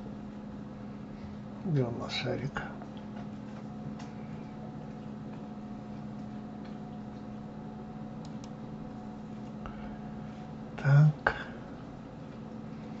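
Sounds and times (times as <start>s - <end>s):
low electrical hum: 0.0s - 13.0s
computer mouse clicks: 8.2s - 8.6s.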